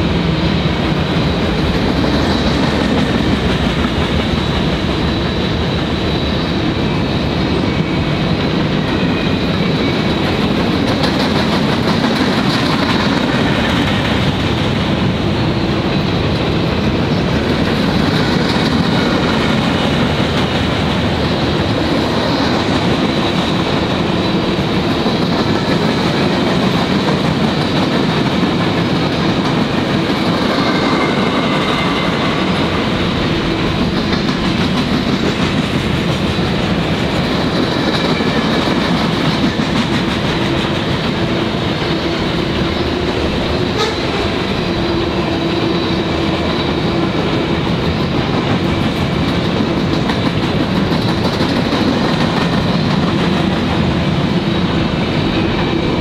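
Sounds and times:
freight train wheels rumbling on rails: 0:00.0 - 0:56.0.

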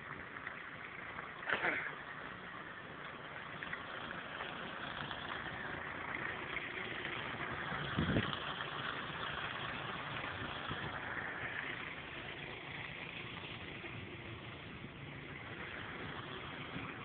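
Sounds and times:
snowblower engine running: 0:04.1 - 0:17.0.

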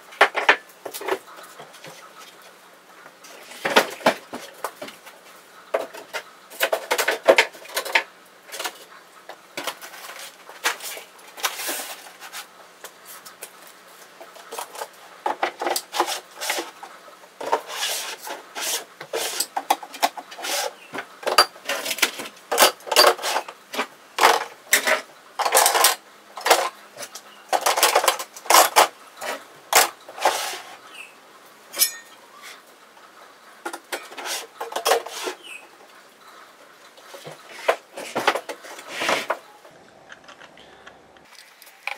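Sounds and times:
metal hand tools clattering in toolbox: 0:31.8 - 0:32.2.

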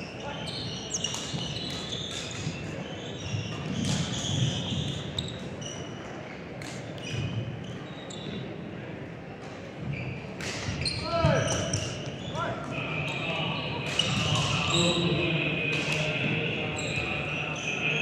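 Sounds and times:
shoes squeaking on court: 0:00.0 - 0:08.6, 0:09.5 - 0:15.0
murmur of voices: 0:00.0 - 0:18.0.

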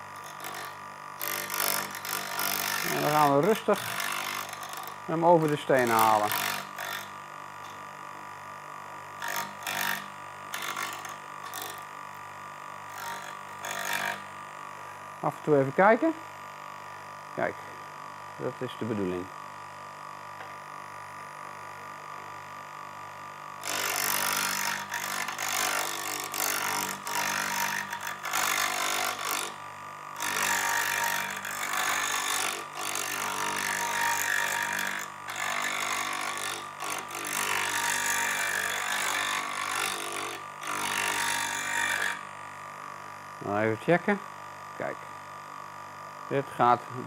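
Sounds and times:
chisel grinding on wheel: 0:00.0 - 0:08.0, 0:09.1 - 0:14.4, 0:23.6 - 0:42.3
bench grinder motor humming: 0:00.0 - 0:47.0.

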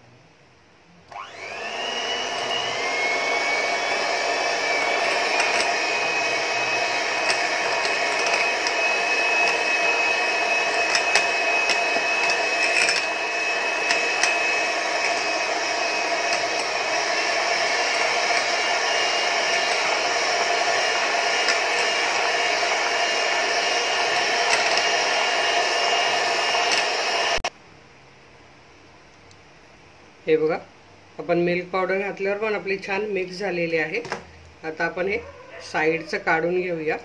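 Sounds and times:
electric hand mixer whirring: 0:01.1 - 0:27.5.

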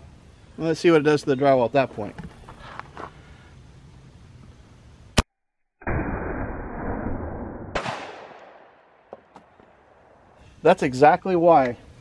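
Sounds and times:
shotgun shots: 0:07.7 - 0:08.9.

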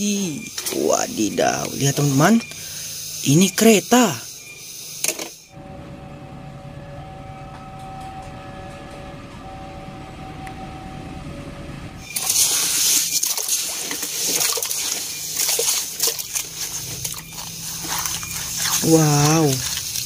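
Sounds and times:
train horn blasts: 0:05.5 - 0:12.0
train rumbling past: 0:05.5 - 0:12.1
hand scooping wet sand: 0:12.2 - 0:20.0.

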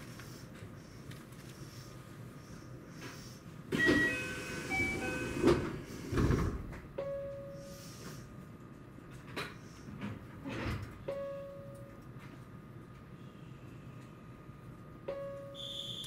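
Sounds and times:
train door chime: 0:03.7 - 0:05.7, 0:11.0 - 0:12.0, 0:15.1 - 0:16.0
sliding doors thudding shut: 0:03.7 - 0:06.9
short beep: 0:15.1 - 0:16.0.

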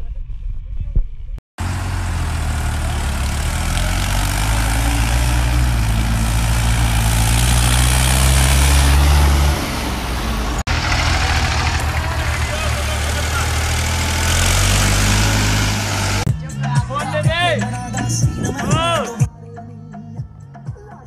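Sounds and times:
tractor diesel engine running: 0:01.6 - 0:16.3.

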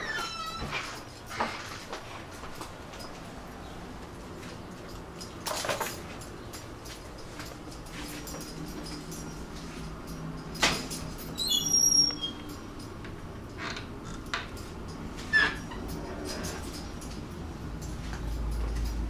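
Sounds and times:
short high-pitched squeaks: 0:11.3 - 0:12.6.

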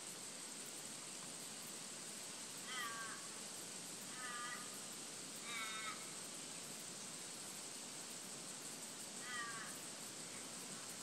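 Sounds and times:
high insect hiss: 0:00.0 - 0:11.0
crow cawing: 0:02.6 - 0:03.3, 0:04.1 - 0:04.8, 0:05.4 - 0:06.2, 0:09.2 - 0:09.8.

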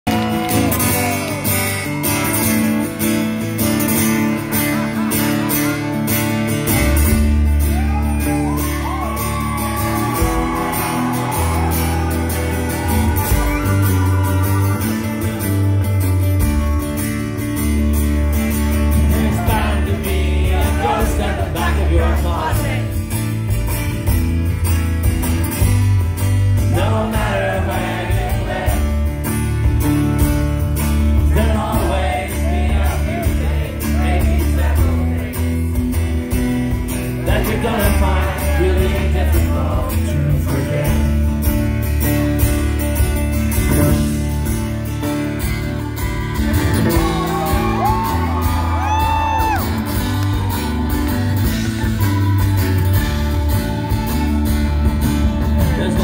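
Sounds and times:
live rock band playing: 0:00.0 - 0:56.0
man singing: 0:18.8 - 0:23.0, 0:26.6 - 0:29.0, 0:31.2 - 0:35.6, 0:37.1 - 0:41.5, 0:55.3 - 0:56.0.

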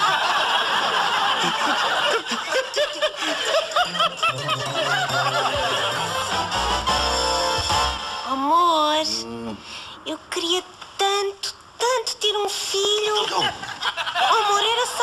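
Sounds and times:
audience laughter: 0:00.0 - 0:06.7, 0:13.3 - 0:15.0.

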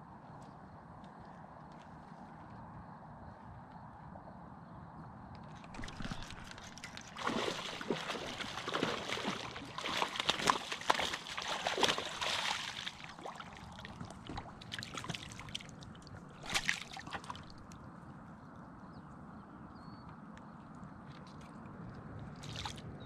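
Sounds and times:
water sloshing and splashing: 0:05.6 - 0:17.9, 0:21.1 - 0:23.0.

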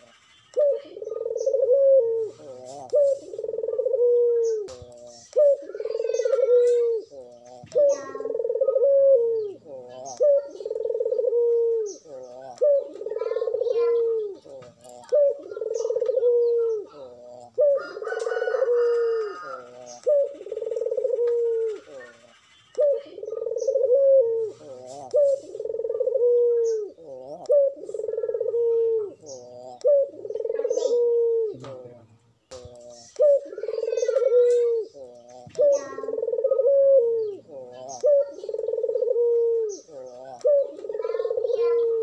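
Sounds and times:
dove cooing: 0:00.0 - 0:42.0.

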